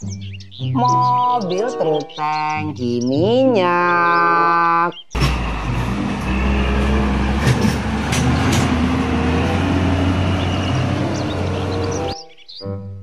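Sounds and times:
truck engine rumbling: 5.1s - 12.2s.

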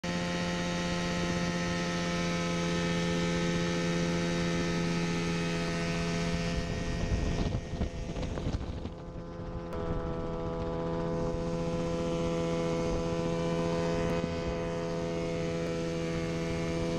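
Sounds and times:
helicopter engine drone: 0.0s - 16.9s
gusty low rumble: 6.0s - 16.9s.

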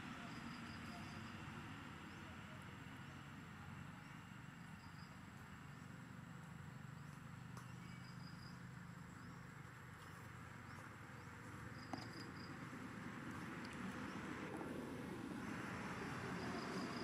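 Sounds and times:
faint high chirps: 7.6s - 8.6s.

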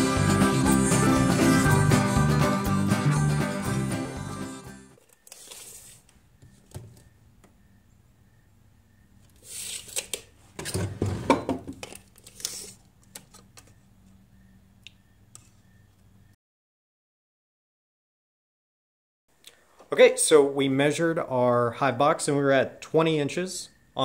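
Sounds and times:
tape measure rattling and scraping: 5.0s - 6.1s, 9.4s - 10.3s, 11.8s - 13.6s.

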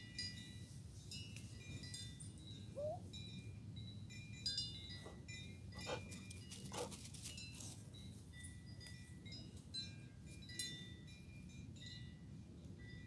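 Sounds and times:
short wavering call: 2.7s - 3.1s.

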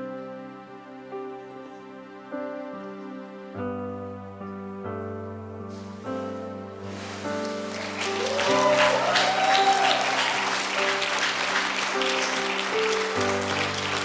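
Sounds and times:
soft keyboard music: 0.0s - 14.0s
congregation applauding: 6.9s - 14.0s.

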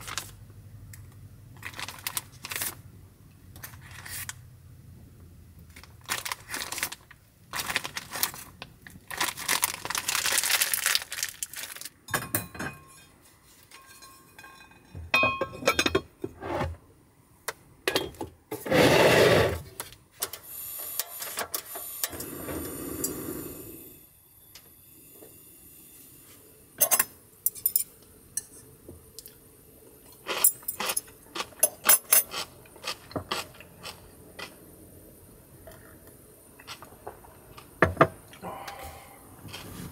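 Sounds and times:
pots and dishes clinking: 12.1s - 16.2s, 26.8s - 28.6s
rush of noise from gas stove: 18.6s - 30.1s.

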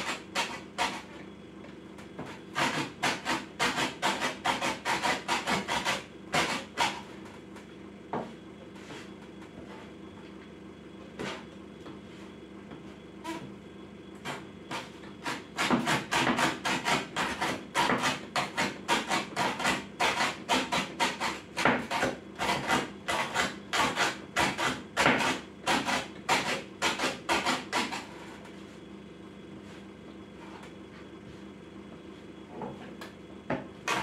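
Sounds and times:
cleaver chopping on wooden board: 15.3s - 28.0s.

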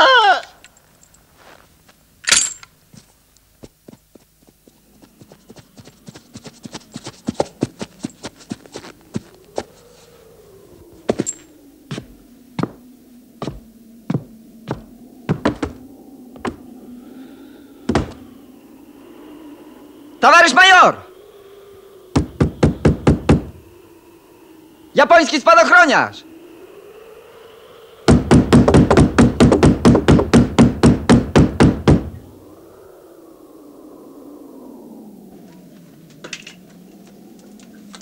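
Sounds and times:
horse galloping on snow: 3.6s - 10.0s.

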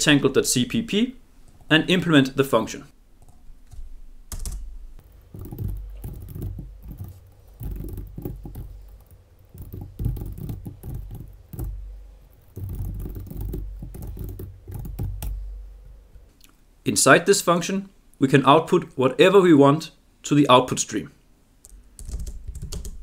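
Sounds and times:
keyboard typing clicks: 3.2s - 15.4s.

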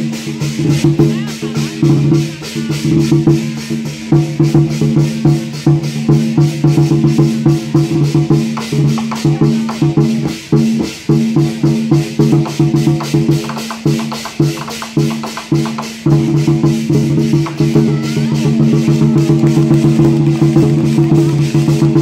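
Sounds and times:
barrel drums beating: 0.0s - 22.0s.

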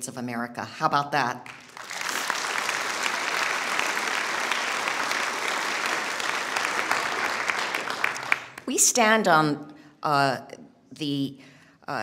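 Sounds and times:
audience applauding: 1.4s - 8.7s.

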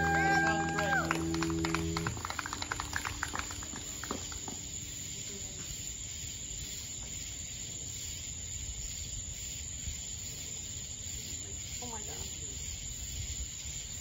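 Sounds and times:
audience clapping: 0.0s - 4.8s
night insects chorus: 0.0s - 14.0s.

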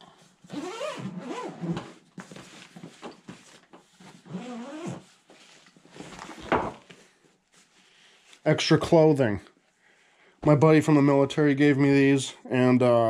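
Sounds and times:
zipper being pulled open: 0.5s - 2.0s, 4.3s - 5.0s.

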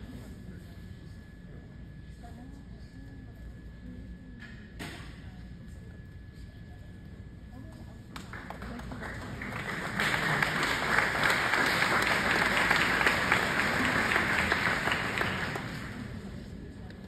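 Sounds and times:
audience applauding: 8.3s - 16.3s.

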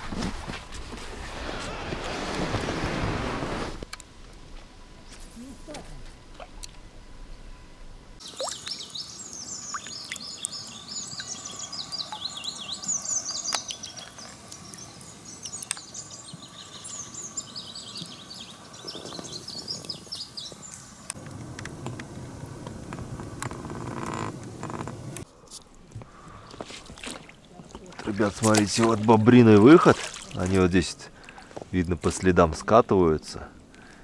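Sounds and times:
low rushing noise: 0.6s - 5.0s
songbirds twittering: 8.2s - 21.2s.

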